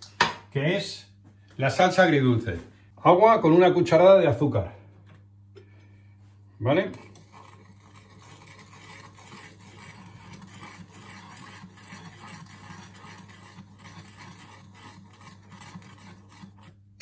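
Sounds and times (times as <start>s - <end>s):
steady low hum: 0.1s - 17.0s
metal spoon scraping frying pan: 7.0s - 16.9s.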